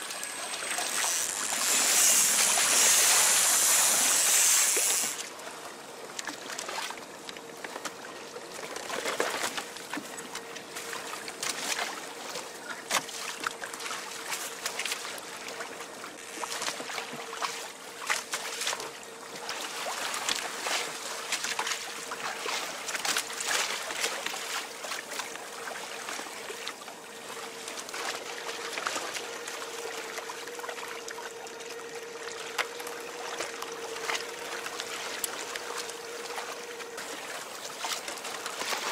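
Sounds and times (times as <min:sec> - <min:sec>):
faint steady hum: 0:00.0 - 0:38.9
water rushing along a hull: 0:00.0 - 0:38.9
spray splashing: 0:00.6 - 0:05.3.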